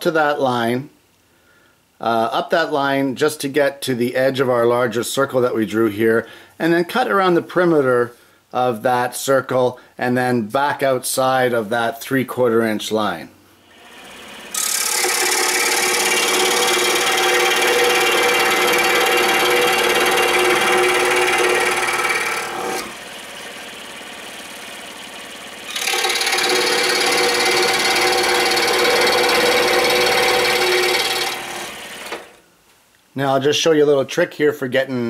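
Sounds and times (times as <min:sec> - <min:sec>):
scroll saw cutting wood: 0:13.7 - 0:32.4.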